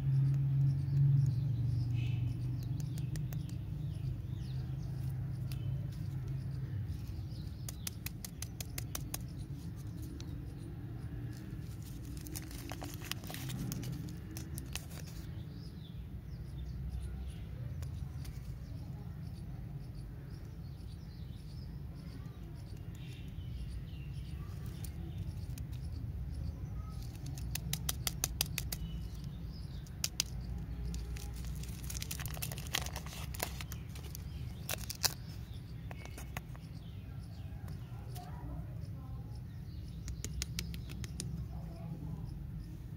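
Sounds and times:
wrappers crinkling: 0:11.6 - 0:15.2, 0:30.9 - 0:35.2.

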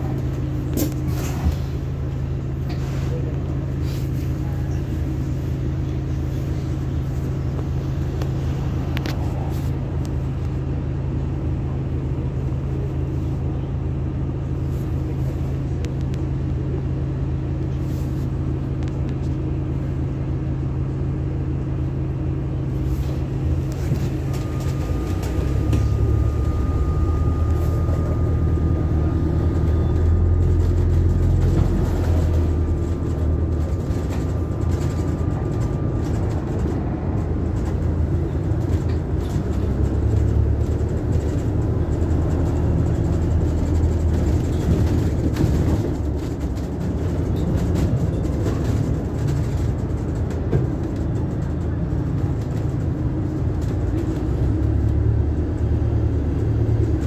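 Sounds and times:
bus engine and road drone: 0:00.0 - 0:57.0
high whine: 0:22.8 - 0:31.9.

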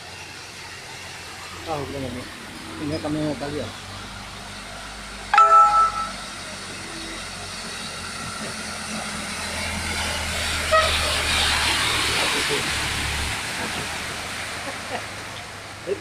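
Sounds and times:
ringing tone: 0:05.4 - 0:06.3
water splashing: 0:10.2 - 0:16.0.

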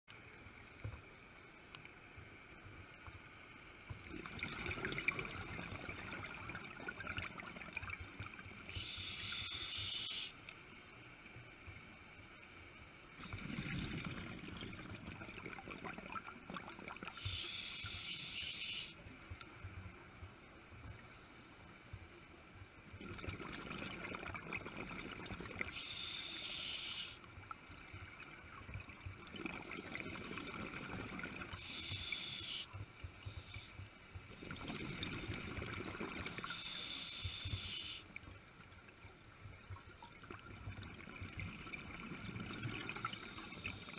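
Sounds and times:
diver breathing through regulator: 0:08.7 - 0:10.4, 0:17.2 - 0:19.0, 0:25.7 - 0:27.2, 0:31.6 - 0:33.8, 0:36.2 - 0:38.1.

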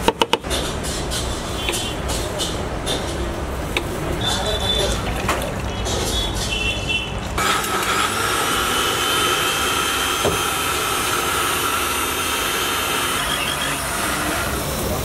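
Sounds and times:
blender whining: 0:07.4 - 0:15.0.

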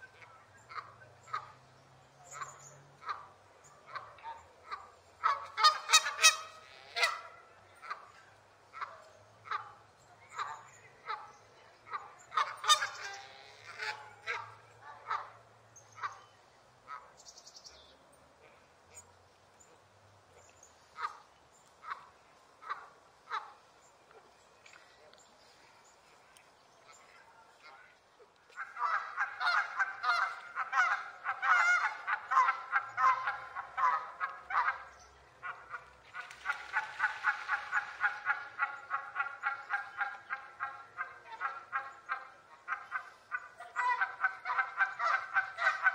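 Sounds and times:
geese honking: 0:00.0 - 0:01.6, 0:02.3 - 0:11.3, 0:11.9 - 0:15.4, 0:28.5 - 0:45.9.

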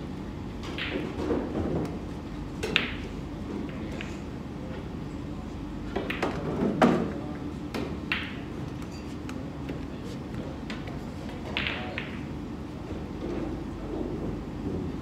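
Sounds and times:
pool balls clicking: 0:02.6 - 0:04.2, 0:05.9 - 0:06.4, 0:10.8 - 0:12.3.

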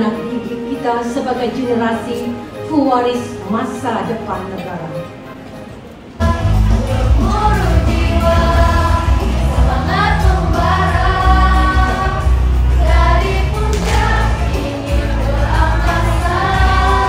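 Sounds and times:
music backing track: 0:00.0 - 0:17.0
children singing: 0:06.2 - 0:17.0.

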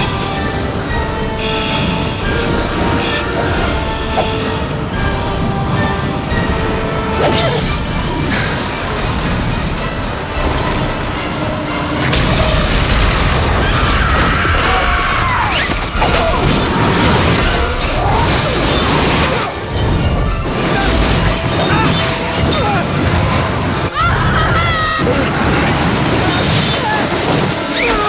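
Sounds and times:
background music: 0:00.0 - 0:28.0
heavy rumble of avalanche: 0:00.0 - 0:28.0
crashes and shattering: 0:07.3 - 0:28.0.

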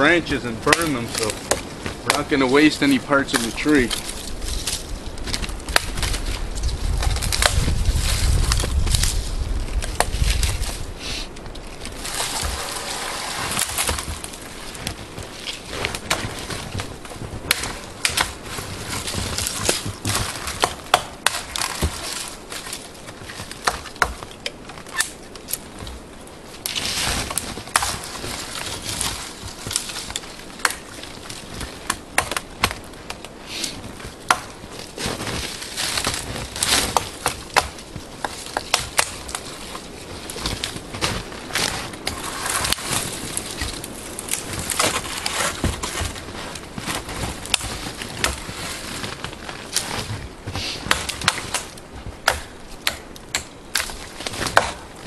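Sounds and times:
knife chopping branches: 0:00.0 - 0:06.3, 0:07.0 - 0:09.0, 0:11.9 - 0:25.5, 0:26.7 - 0:28.6, 0:29.2 - 0:34.6, 0:35.6 - 0:39.9, 0:43.4 - 0:46.2, 0:49.1 - 0:55.0
branches rustling: 0:00.0 - 0:55.0.

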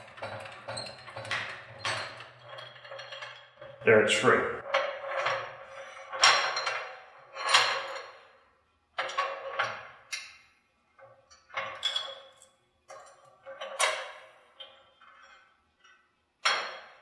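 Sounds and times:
steel parts knocking and ringing: 0:00.0 - 0:03.8.

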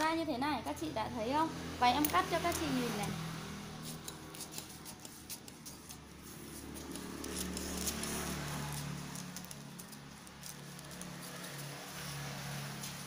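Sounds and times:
scissors snipping paper: 0:02.0 - 0:02.8, 0:03.7 - 0:13.0
paper crackle: 0:03.8 - 0:13.0.

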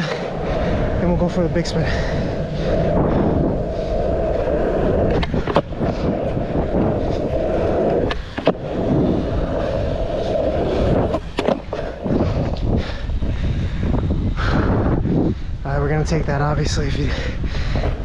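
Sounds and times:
skateboard wheels rolling on pavement: 0:00.0 - 0:18.0
skateboard clacks: 0:03.5 - 0:12.7.

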